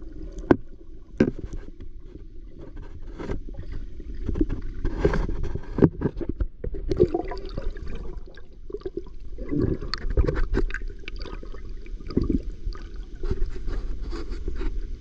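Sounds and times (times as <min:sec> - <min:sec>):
river water sloshing and gurgling: 0:06.8 - 0:14.2.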